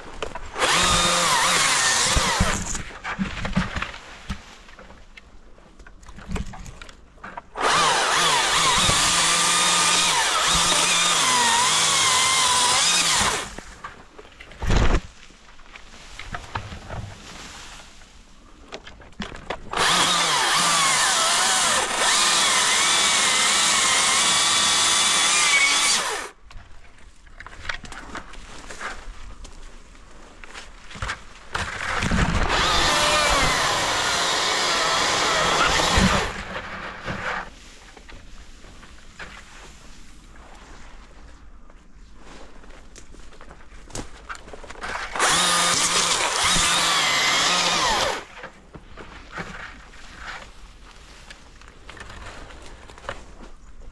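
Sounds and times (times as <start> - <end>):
chainsaw cutting wood: 0.5 - 3.6, 7.5 - 13.8, 19.6 - 26.4, 31.6 - 37.4, 44.7 - 48.4
rustling through branches: 7.6 - 23.2.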